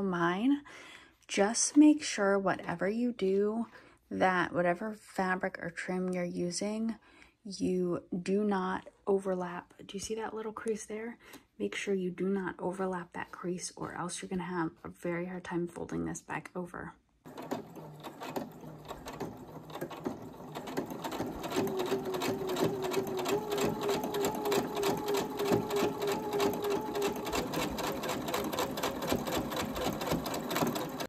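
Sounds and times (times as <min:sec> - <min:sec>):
sewing machine motor hum: 0:17.3 - 0:31.0
sewing machine needle strokes: 0:17.3 - 0:31.0.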